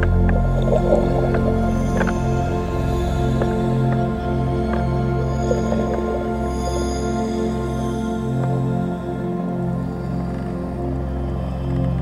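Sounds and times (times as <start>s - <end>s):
sustained music chords: 0.0s - 11.8s.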